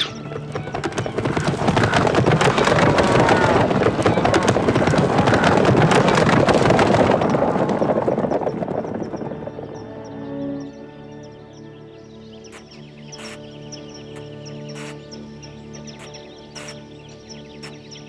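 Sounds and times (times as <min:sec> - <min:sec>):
rush of rapid clattering: 0:00.1 - 0:09.8.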